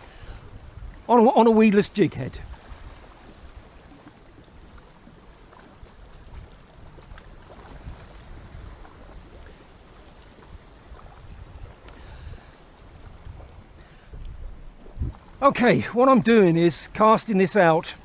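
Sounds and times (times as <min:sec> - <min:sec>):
wind buffeting microphone: 0:00.0 - 0:01.1, 0:02.2 - 0:16.0
sea against rocks: 0:00.0 - 0:18.0
faint clicks: 0:11.8 - 0:12.0.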